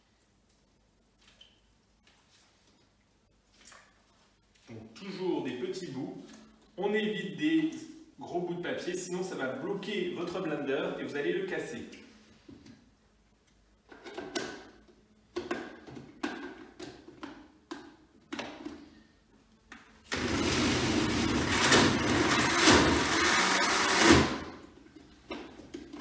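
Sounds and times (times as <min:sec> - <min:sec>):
blender running: 0:20.1 - 0:24.6.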